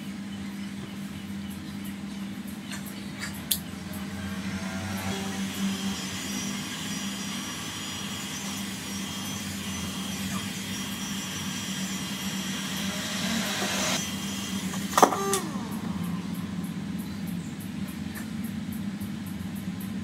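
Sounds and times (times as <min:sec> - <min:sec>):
hot air gun blowing: 0:03.8 - 0:16.4.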